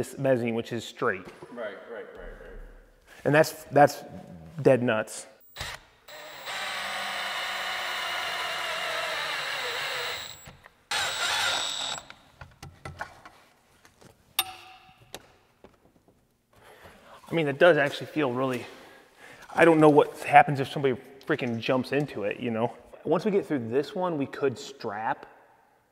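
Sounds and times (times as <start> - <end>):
cordless drill running: 5.5 - 12.2.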